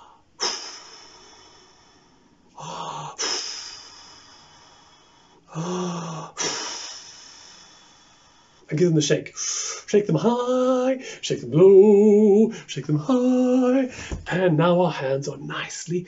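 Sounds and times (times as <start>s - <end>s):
man breathing deeply: 0.0s - 8.7s, 13.9s - 14.3s
man gasping: 0.0s - 8.7s, 13.9s - 14.3s.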